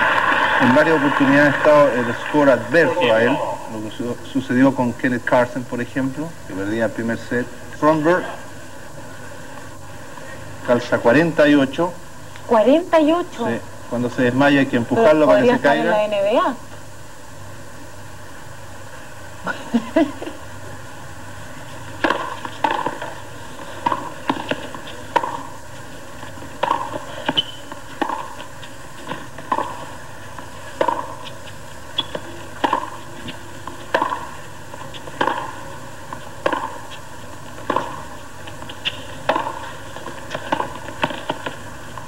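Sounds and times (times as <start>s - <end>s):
quiet crowd hiss: 0.0s - 42.0s
tennis ball pops: 22.0s - 23.2s, 23.8s - 25.5s, 26.6s - 27.1s, 28.0s - 28.4s, 29.4s - 29.8s, 30.8s - 31.3s, 32.0s - 33.0s, 33.6s - 34.4s, 35.0s - 35.6s, 36.4s - 36.9s, 37.6s - 38.1s, 39.2s - 41.6s.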